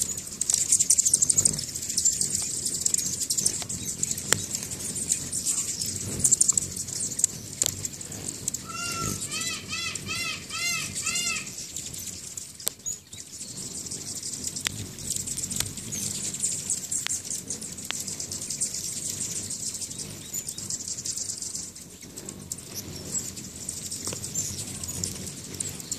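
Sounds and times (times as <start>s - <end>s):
sharp ticks: 0.0s - 9.2s, 11.0s - 22.8s
faint high chirping: 0.0s - 25.9s
hummingbird wings whirring: 0.0s - 25.9s.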